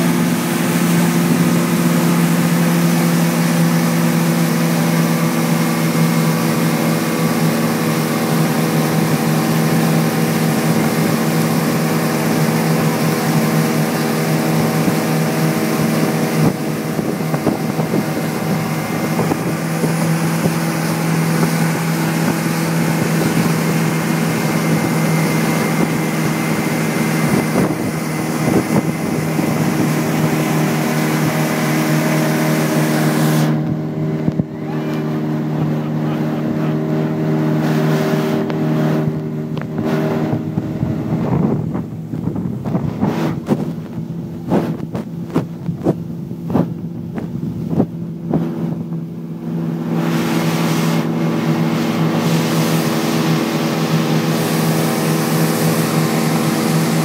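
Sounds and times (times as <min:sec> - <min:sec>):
churning wake water: 0:00.0 - 0:57.0
motorboat engine humming: 0:00.0 - 0:57.0
wind rushing: 0:14.6 - 0:35.6, 0:37.2 - 0:57.0.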